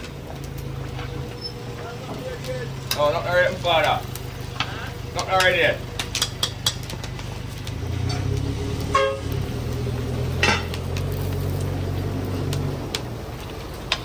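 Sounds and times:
engine rumbling: 0.0 - 14.0
short horn toot: 8.9 - 9.4
metal clank: 10.4 - 10.8.

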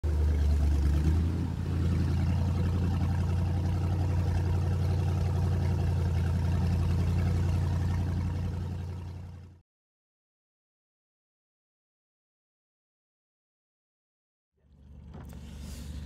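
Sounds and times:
outboard motor running: 0.0 - 9.6, 14.6 - 16.0.

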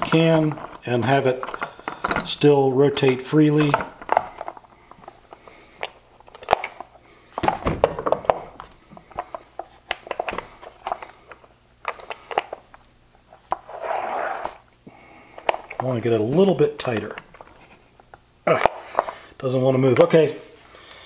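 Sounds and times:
metal nut and washers clinking: 0.0 - 7.0, 7.8 - 13.7, 15.4 - 20.3.

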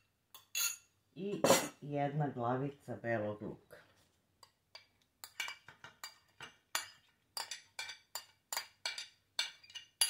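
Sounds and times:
spoon clinking against glass dish: 0.3 - 0.9, 5.2 - 10.0.

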